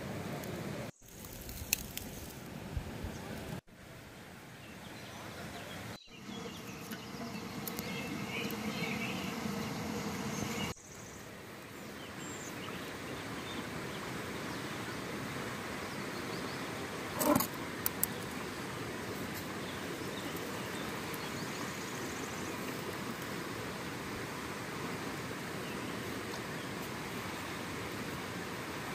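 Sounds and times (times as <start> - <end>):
stream water rushing: 6.2 - 28.9.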